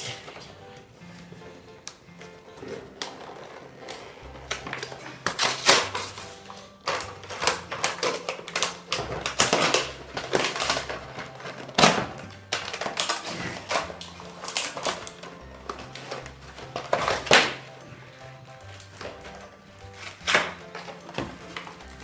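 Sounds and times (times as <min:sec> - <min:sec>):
background music: 0:00.0 - 0:22.0
cardboard ripping and crumpling: 0:02.8 - 0:17.7.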